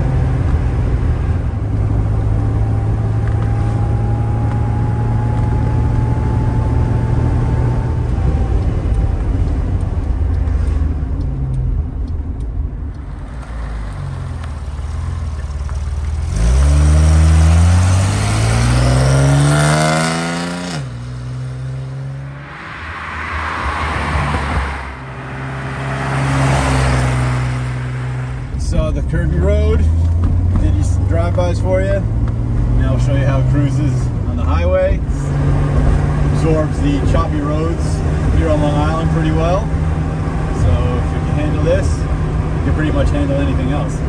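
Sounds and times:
car engine running: 0:00.0 - 0:22.6.

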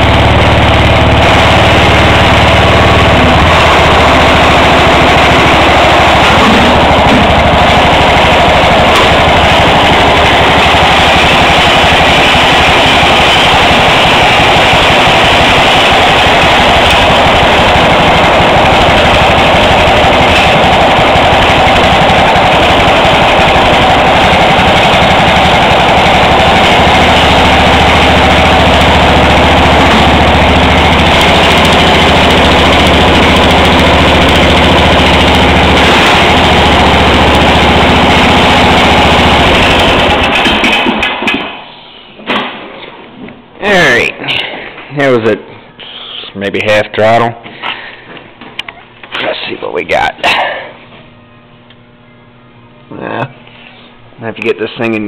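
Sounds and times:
lawn tractor engine running: 0:00.0 - 0:41.6.

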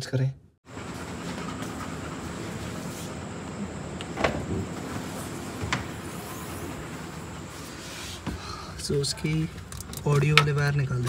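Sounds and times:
steady low hum: 0:00.7 - 0:11.0.

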